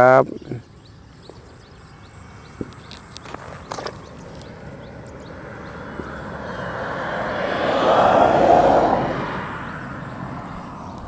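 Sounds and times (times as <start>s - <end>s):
vehicle passing by: 3.2s - 11.0s.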